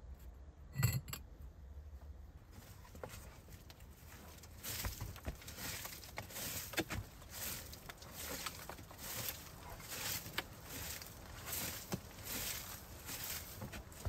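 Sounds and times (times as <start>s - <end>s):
broom sweeping dirt floor: 2.5s - 14.0s.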